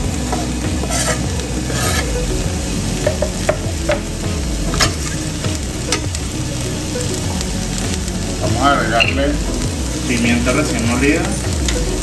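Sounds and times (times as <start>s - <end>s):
onions sizzling in a pan: 0.0s - 12.0s
scraping on wooden cutting board: 0.3s - 2.2s.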